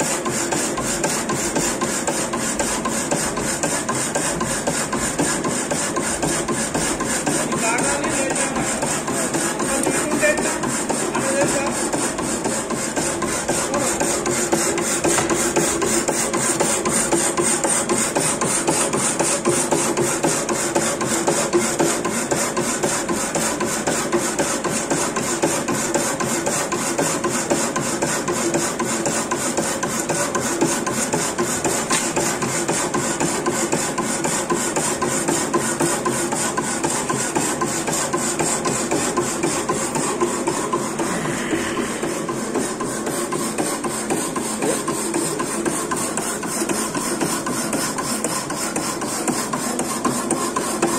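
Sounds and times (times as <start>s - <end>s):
machine hum: 37.6s - 49.2s.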